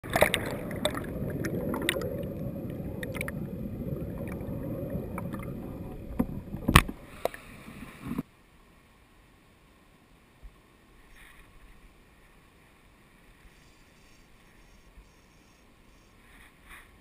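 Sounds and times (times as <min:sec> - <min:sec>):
small underwater clicks and knocks: 0:00.0 - 0:03.5, 0:04.1 - 0:07.4
muffled underwater river rushing: 0:00.0 - 0:16.6.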